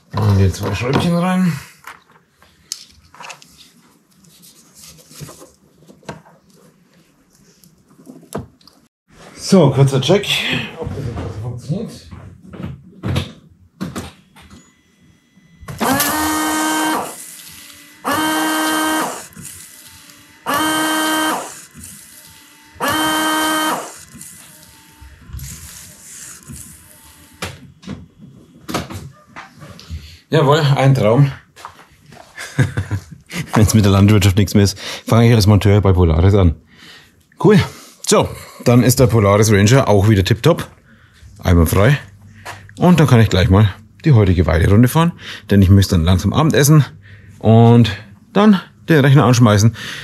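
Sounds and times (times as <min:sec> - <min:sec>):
washer pump buzzing: 0:14.6 - 0:28.8.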